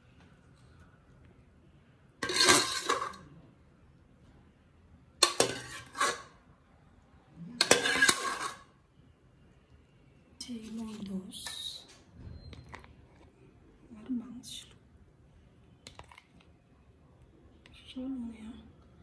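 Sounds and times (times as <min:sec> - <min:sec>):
ladle scraping metal pots: 0:02.2 - 0:03.3, 0:05.2 - 0:06.4, 0:07.6 - 0:08.8.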